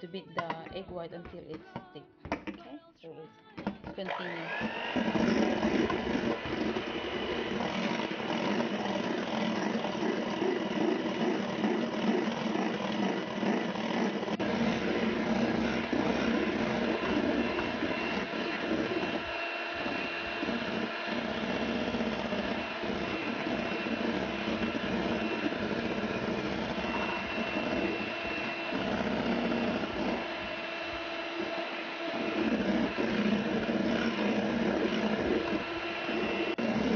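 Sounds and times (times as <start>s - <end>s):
electric hand mixer whipping: 3.6s - 36.9s.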